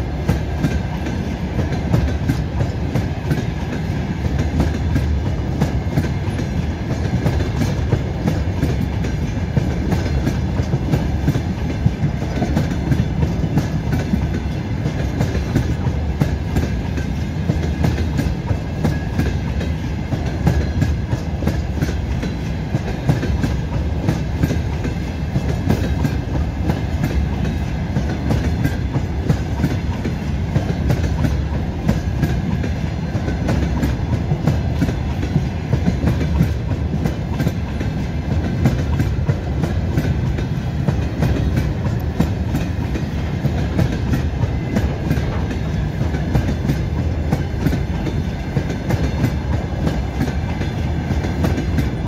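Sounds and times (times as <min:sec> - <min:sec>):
freight train wheels rumbling: 0:00.0 - 0:52.0
wheels clacking over rail joints: 0:00.0 - 0:52.0.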